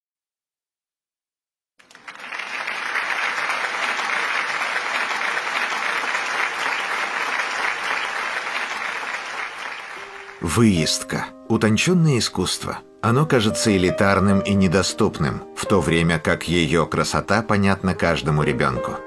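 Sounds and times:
large crowd applauding: 1.8s - 10.7s.

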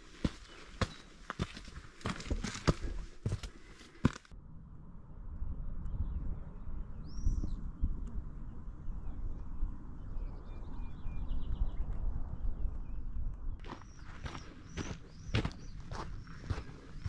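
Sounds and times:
boots on rocky trail: 0.0s - 4.3s, 13.6s - 17.0s
bird chirp: 0.2s - 1.7s, 5.9s - 17.0s.

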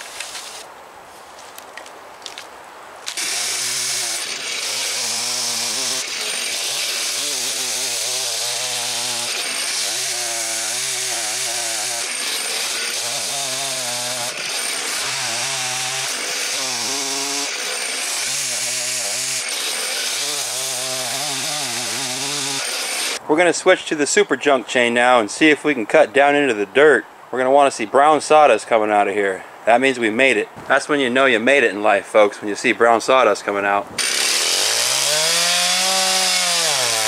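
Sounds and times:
chainsaw cutting wood: 0.0s - 0.6s, 3.0s - 23.2s, 34.0s - 37.0s.

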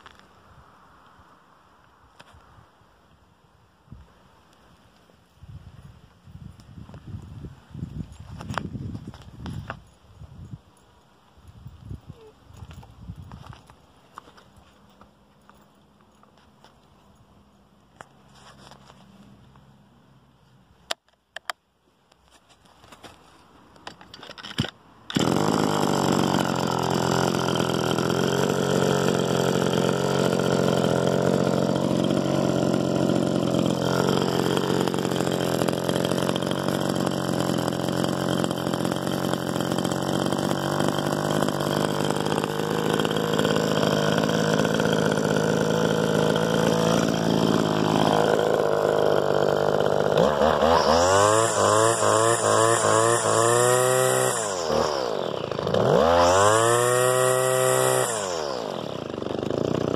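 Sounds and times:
brush cutter engine running: 23.9s - 59.9s.

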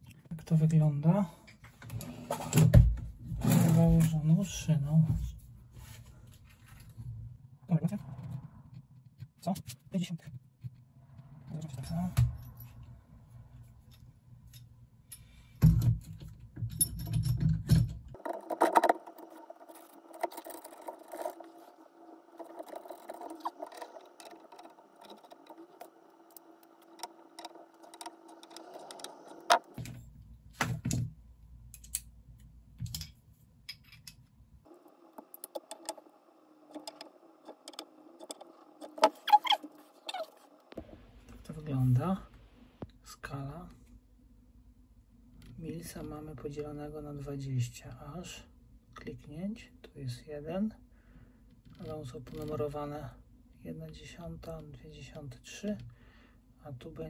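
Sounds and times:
faint steady hum: 0.0s - 57.0s
metal clinks and rattles: 16.6s - 18.8s.

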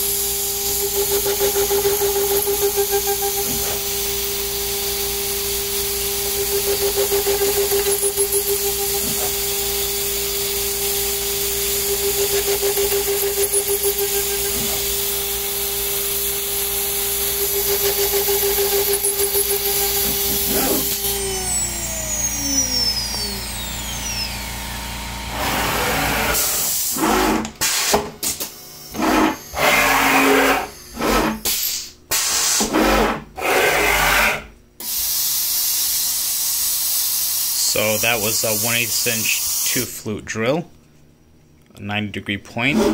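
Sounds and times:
router spindle whining: 0.0s - 27.6s, 28.7s - 31.4s
drill pecking holes in metal: 0.0s - 35.1s
short bursts of air hiss: 31.5s - 32.7s.

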